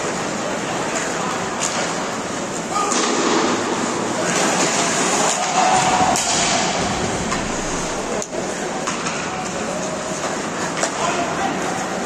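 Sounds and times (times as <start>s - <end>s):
players shouting: 5.1s - 8.5s.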